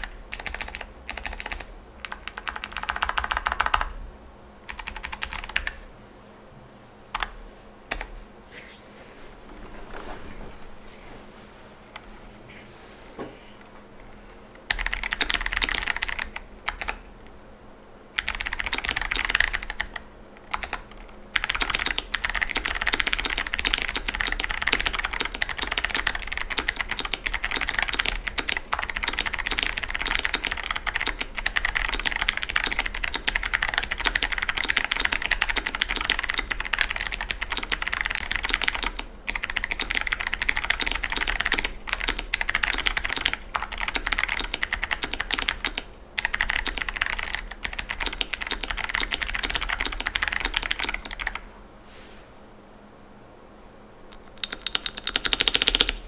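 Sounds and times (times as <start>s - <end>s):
clicky mechanical keyboard typing: 0.0s - 4.0s, 4.7s - 5.8s, 7.1s - 8.1s, 14.7s - 17.0s, 18.2s - 51.4s, 54.1s - 56.0s.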